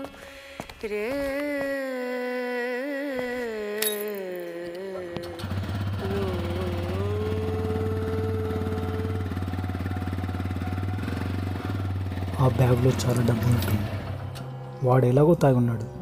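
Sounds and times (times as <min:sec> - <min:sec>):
person humming: 0:00.0 - 0:10.0
motorcycle engine idling: 0:05.2 - 0:14.8.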